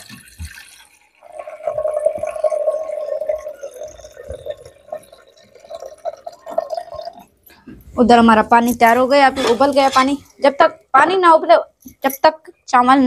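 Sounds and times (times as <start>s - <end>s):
water pouring into a pot: 0.0s - 7.5s
water dripping: 0.0s - 7.8s.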